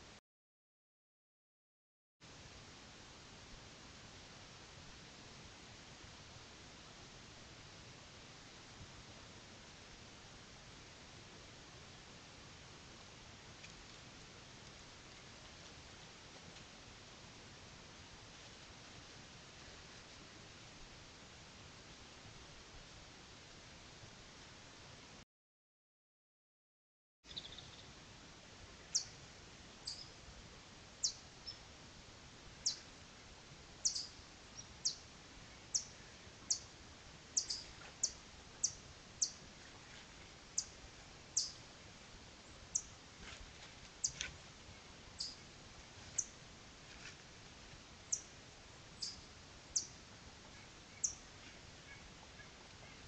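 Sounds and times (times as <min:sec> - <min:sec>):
bird chip calls: 0:33.8 - 0:35.0, 0:37.4 - 0:39.4, 0:41.4 - 0:41.6.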